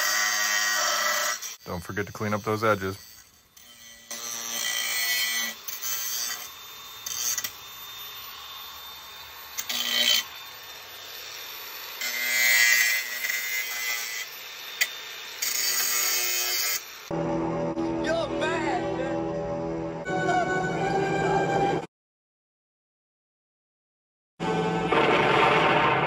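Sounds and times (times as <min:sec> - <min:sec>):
angle grinder grinding metal: 0:00.0 - 0:17.1.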